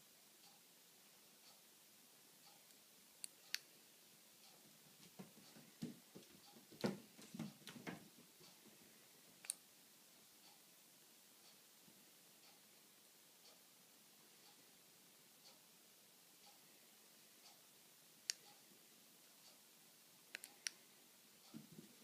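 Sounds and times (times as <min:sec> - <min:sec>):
cat paws thumping on tiled floor: 0:05.0 - 0:08.1
sharp clicks: 0:20.3 - 0:20.8.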